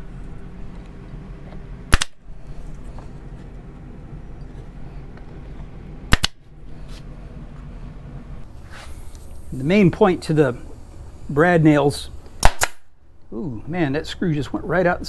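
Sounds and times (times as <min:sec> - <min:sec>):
brad nailer firing: 0:01.9 - 0:02.2, 0:06.1 - 0:06.4, 0:12.4 - 0:12.9.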